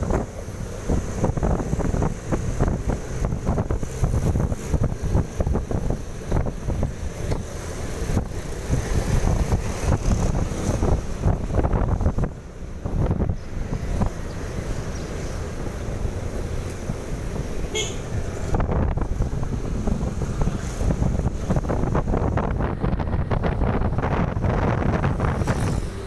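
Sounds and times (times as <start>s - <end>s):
car road noise: 0.0s - 26.0s
wind buffeting microphone: 0.0s - 26.0s.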